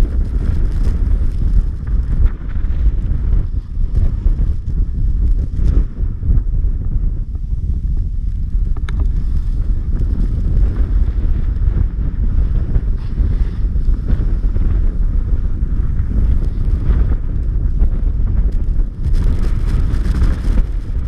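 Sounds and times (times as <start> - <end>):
wind buffeting microphone: 0.0 - 21.0
snowboard hissing over snow: 9.1 - 17.8.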